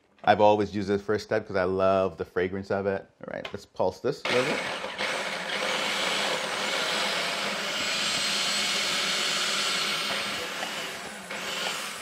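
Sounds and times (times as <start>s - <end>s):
food processor whirring: 4.3s - 12.0s.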